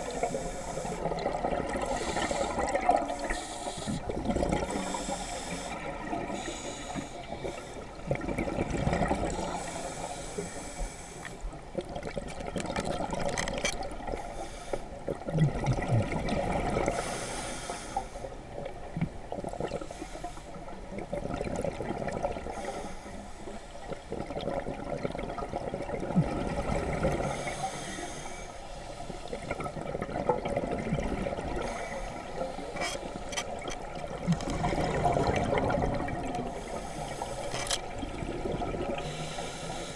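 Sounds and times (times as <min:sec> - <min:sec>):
scuba regulator breathing underwater: 0:00.0 - 0:08.1, 0:09.0 - 0:11.5, 0:14.1 - 0:14.9, 0:16.8 - 0:18.3, 0:19.6 - 0:20.7, 0:22.3 - 0:24.4, 0:26.5 - 0:29.9, 0:31.2 - 0:33.3, 0:34.2 - 0:39.9
exhaled bubbles gurgling: 0:00.0 - 0:10.1, 0:11.7 - 0:14.3, 0:15.0 - 0:17.2, 0:20.6 - 0:22.9, 0:23.8 - 0:39.9.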